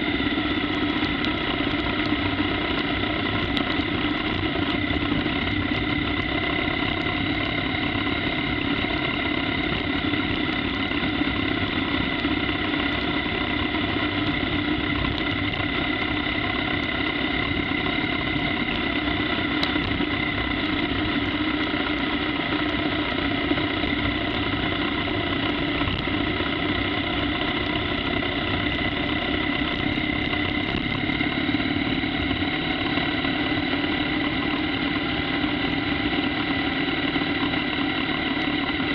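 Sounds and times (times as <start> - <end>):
motorcycle engine running steadily: 0.0 - 38.9.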